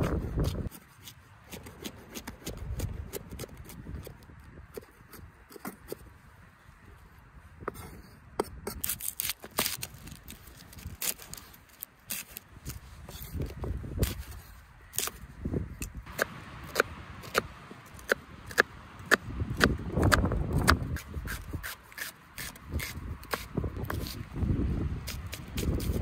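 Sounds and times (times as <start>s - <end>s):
wind rumble on microphone: 0.0s - 0.8s, 1.6s - 9.0s, 12.5s - 17.5s, 18.4s - 21.7s, 22.4s - 26.0s.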